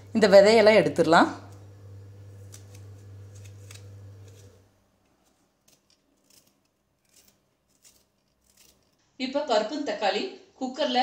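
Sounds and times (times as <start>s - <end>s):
low steady hum: 0.0s - 6.0s
knife clicking and scraping: 5.6s - 9.0s.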